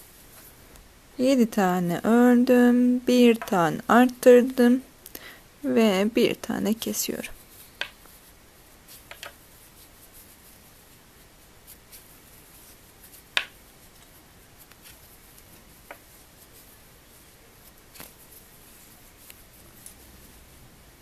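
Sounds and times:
crochet hook and yarn handling: 3.1 - 4.7, 6.8 - 20.6.

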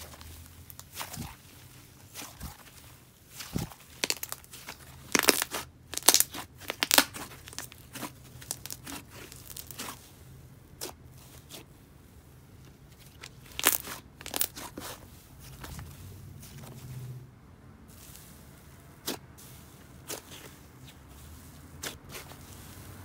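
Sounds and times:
slime crackling and popping: 0.0 - 10.1, 13.2 - 15.0
slime squishing: 0.0 - 17.2, 17.8 - 23.0.

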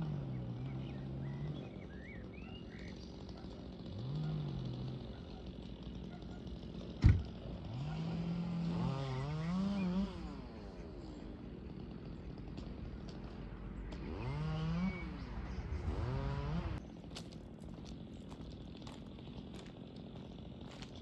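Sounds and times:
small engine revving: 0.0 - 21.0.

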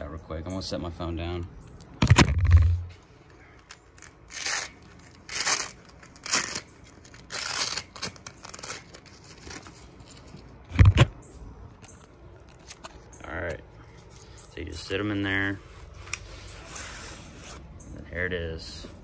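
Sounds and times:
hook-and-loop fasteners ripping: 3.4 - 11.1.

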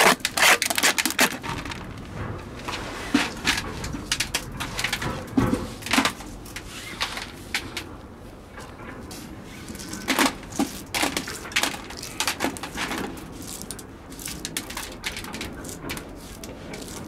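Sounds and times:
wooden scraper scraping concrete: 0.0 - 1.5.

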